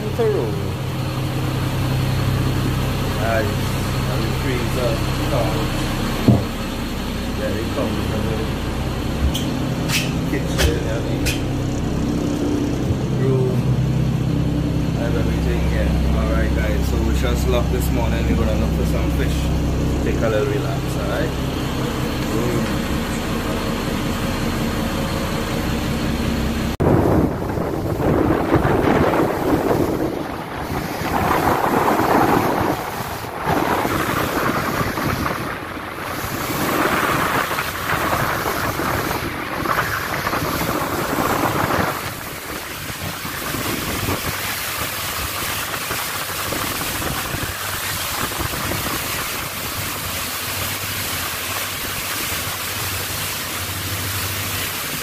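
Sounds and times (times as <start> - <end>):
motorboat engine hum: 0.0 - 55.0
water noise: 0.0 - 55.0
wind buffeting microphone: 26.8 - 49.9.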